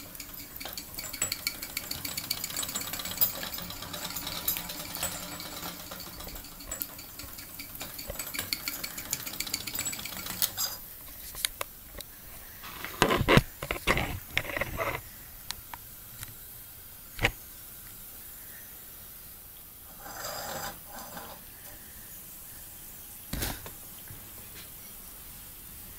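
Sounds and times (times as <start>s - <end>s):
metallic clatters and knocks: 0.0s - 10.8s
toy steam engine rattling tick: 0.0s - 10.9s.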